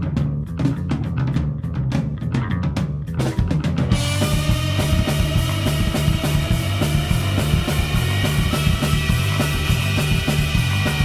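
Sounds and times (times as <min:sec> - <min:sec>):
bass guitar: 0:00.0 - 0:11.0
drum kit steady beat: 0:00.0 - 0:11.0
sustained electric guitar notes: 0:03.9 - 0:11.0.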